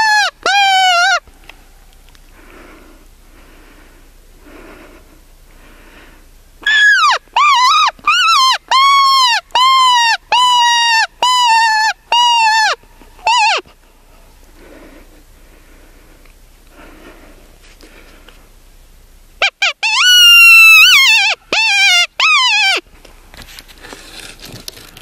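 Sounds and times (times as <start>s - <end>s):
coyote-style howling yips: 0.0s - 1.3s, 6.6s - 13.7s, 19.4s - 22.8s.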